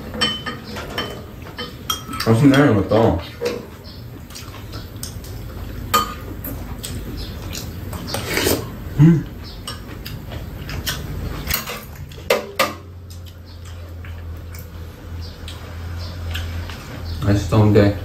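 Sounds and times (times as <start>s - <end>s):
utensils clinking against bowls: 0.0s - 8.8s, 9.4s - 14.7s.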